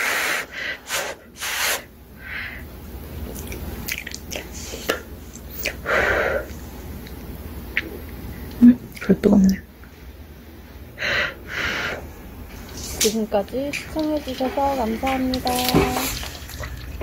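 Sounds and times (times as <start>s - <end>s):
person blowing puffs of breath: 0.0s - 2.6s, 5.6s - 6.6s, 11.0s - 12.1s.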